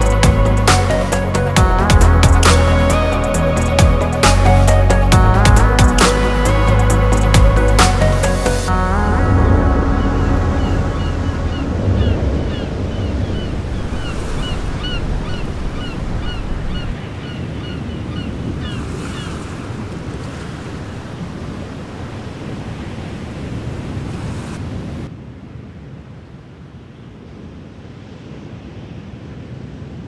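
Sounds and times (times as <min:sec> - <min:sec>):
ocean surf washing in: 0:00.0 - 0:30.0
wind: 0:00.0 - 0:30.0.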